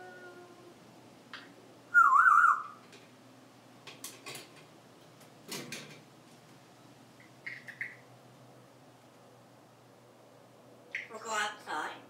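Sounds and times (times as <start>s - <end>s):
parrot warbling whistle: 1.9s - 2.8s.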